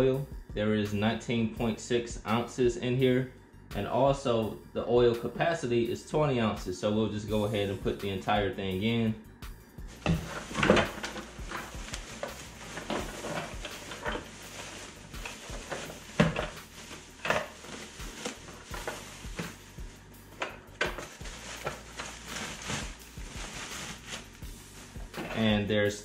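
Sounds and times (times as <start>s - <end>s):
plastic bags rustling and crinkling: 9.9s - 25.6s.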